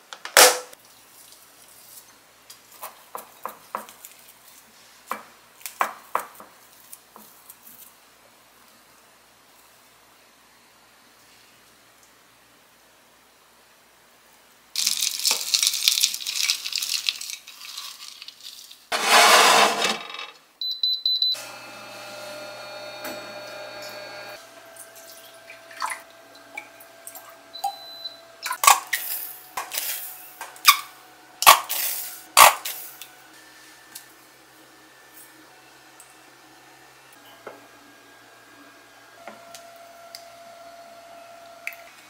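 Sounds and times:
short electronic oven beeps: 0:20.6 - 0:24.4, 0:27.5 - 0:28.3
oven hum: 0:21.4 - 0:28.5.

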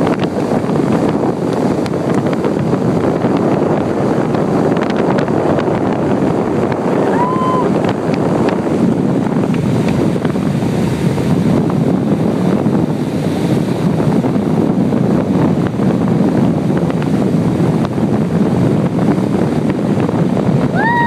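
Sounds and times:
motorboat engine: 0:00.0 - 0:21.0
water noise: 0:00.0 - 0:21.0
wind on microphone: 0:00.0 - 0:21.0.

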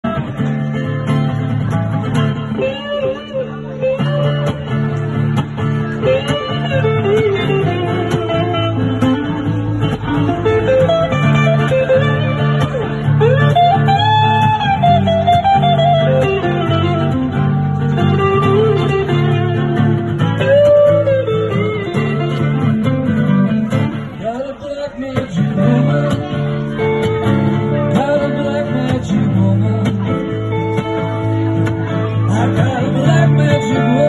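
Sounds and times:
acoustic guitar chords: 0:00.0 - 0:34.0
electric guitar blues lead: 0:00.0 - 0:34.0.

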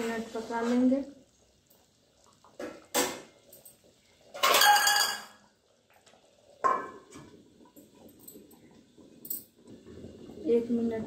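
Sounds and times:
utensils clinking: 0:03.5 - 0:05.4
lid clanking onto pot: 0:04.3 - 0:05.4
metal lid clattering and ringing: 0:04.4 - 0:05.4.

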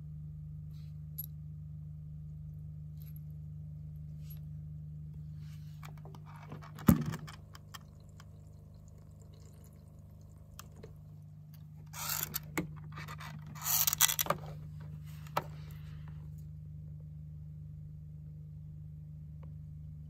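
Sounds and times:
toy washing machine humming: 0:06.2 - 0:15.4.

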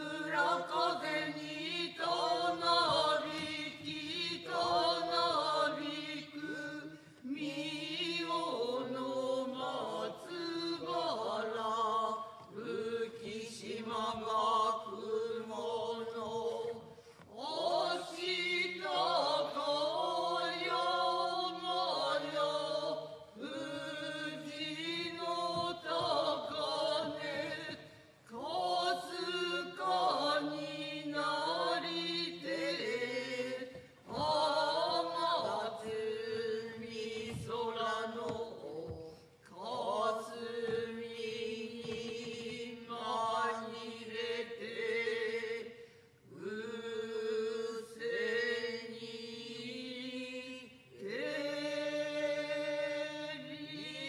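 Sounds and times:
chorus chanting in unison: 0:00.0 - 0:54.0.

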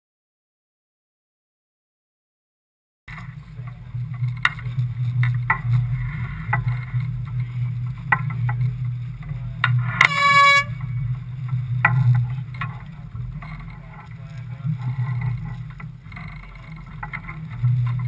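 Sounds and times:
steady low hum: 0:03.1 - 0:18.0
air horn blast: 0:09.9 - 0:11.0.

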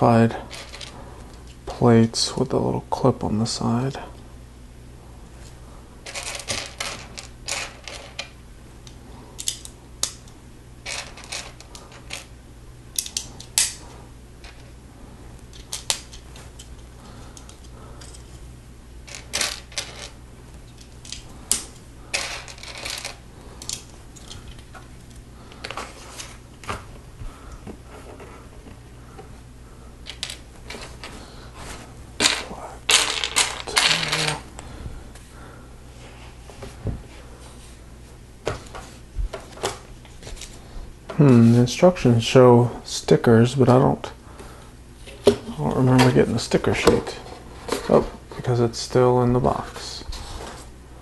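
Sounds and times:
plastic pieces clicking together: 0:09.4 - 0:12.3, 0:12.9 - 0:13.8, 0:15.5 - 0:16.8, 0:32.2 - 0:34.4
clatter of loose plastic pieces: 0:19.1 - 0:20.1, 0:20.8 - 0:26.8.

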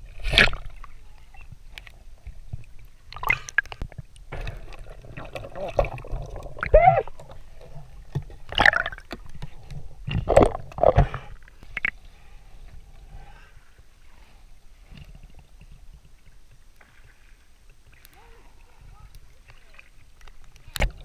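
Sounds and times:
water rushing and bubbling: 0:00.0 - 0:21.0
steady underwater hiss: 0:10.9 - 0:20.7.

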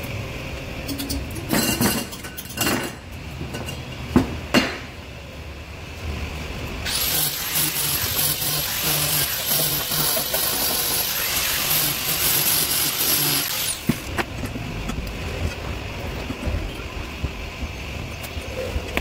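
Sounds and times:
angle grinder grinding steel: 0:06.9 - 0:14.1.

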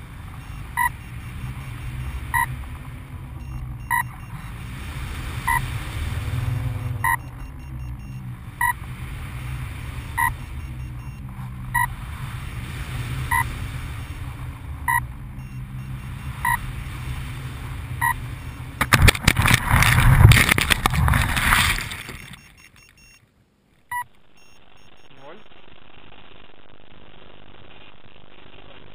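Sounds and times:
motor short beeps: 0:03.4 - 0:04.4, 0:06.8 - 0:08.8, 0:21.8 - 0:23.2, 0:23.9 - 0:25.1
wind rush: 0:16.1 - 0:22.2
rustling and scraping in tall grass: 0:16.1 - 0:22.9.

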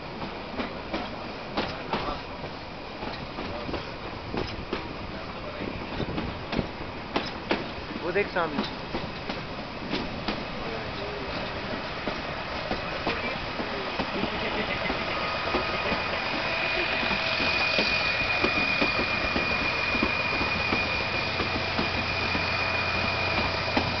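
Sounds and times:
train wheels clattering on rails: 0:00.0 - 0:24.0
high wheel squeal: 0:14.8 - 0:24.0.

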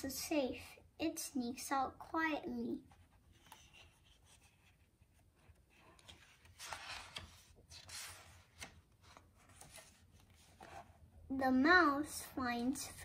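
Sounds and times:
paper page turning: 0:03.0 - 0:04.8, 0:05.4 - 0:10.9.

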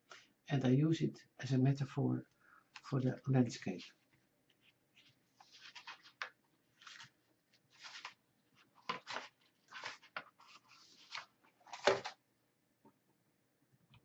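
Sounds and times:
paper rustling at a desk: 0:03.8 - 0:12.2.

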